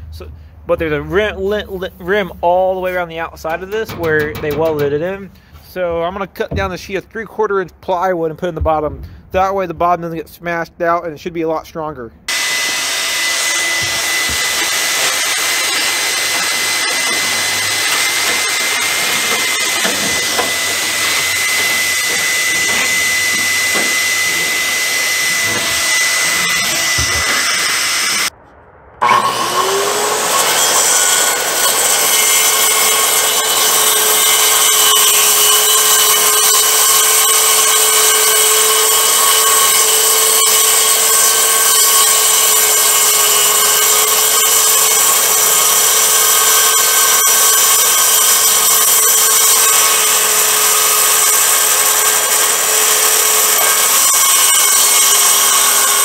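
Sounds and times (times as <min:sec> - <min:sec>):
shop vacuum sucking air: 0:29.0 - 0:33.6.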